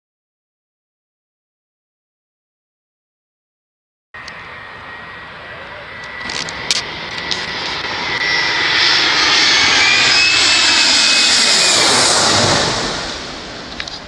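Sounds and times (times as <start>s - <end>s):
jet airliner passing overhead: 4.2s - 14.0s.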